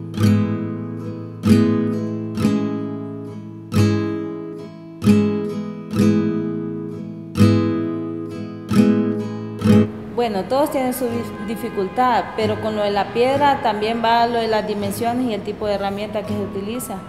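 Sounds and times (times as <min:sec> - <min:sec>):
strummed acoustic guitar chords: 0:00.0 - 0:10.2.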